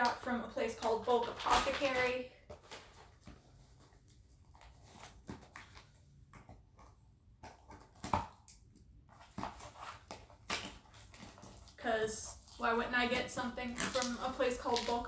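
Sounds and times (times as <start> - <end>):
scissors cutting packing tape: 13.6 - 15.0.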